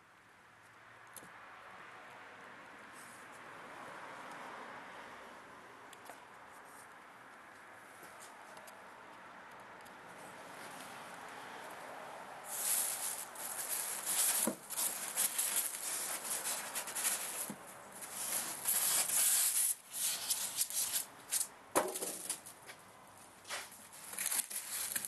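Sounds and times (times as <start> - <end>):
plastic bag rustling and crinkling: 12.5 - 21.1, 23.9 - 25.0.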